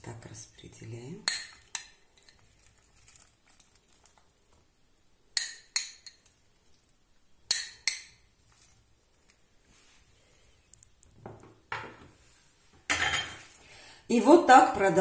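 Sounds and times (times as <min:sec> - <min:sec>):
metal spoon tapping glass bowl: 0:05.4 - 0:06.3.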